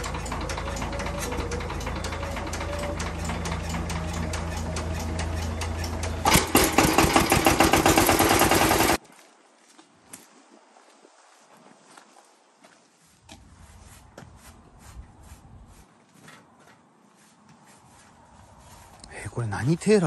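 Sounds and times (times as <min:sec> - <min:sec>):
diesel engine clattering: 0:00.0 - 0:09.0.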